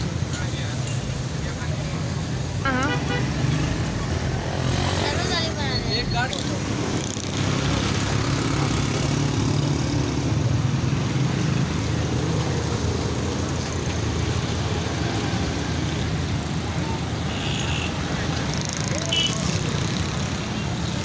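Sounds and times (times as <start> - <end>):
street traffic: 0.0 - 21.0.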